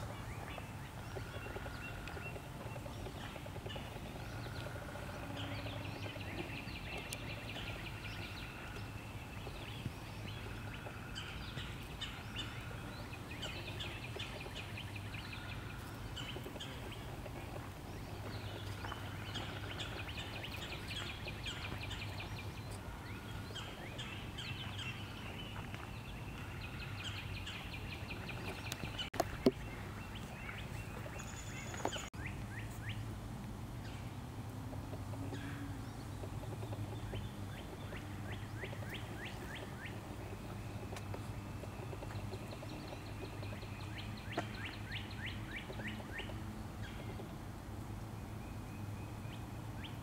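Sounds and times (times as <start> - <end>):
songbirds singing: 0.0 - 50.0.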